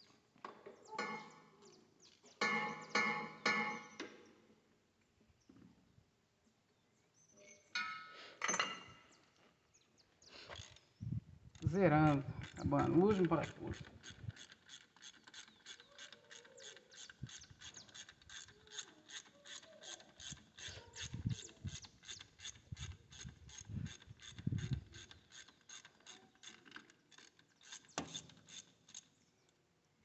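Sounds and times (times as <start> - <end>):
ratchet wrench clicking: 12.3 - 29.1.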